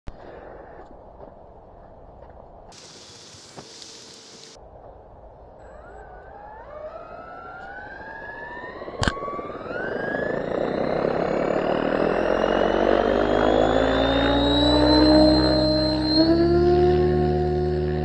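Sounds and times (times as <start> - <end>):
helicopter motor whine rising: 5.6 - 18.0.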